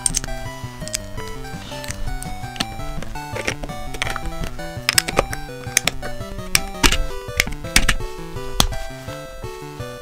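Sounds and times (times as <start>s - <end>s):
plastic bricks clicking together: 0.0s - 8.7s
background music: 0.0s - 10.0s.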